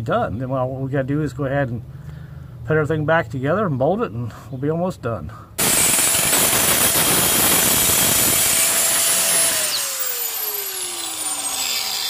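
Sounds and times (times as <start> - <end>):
angle grinder cutting metal: 5.6 - 12.0
grinder motor spinning down: 5.6 - 12.0.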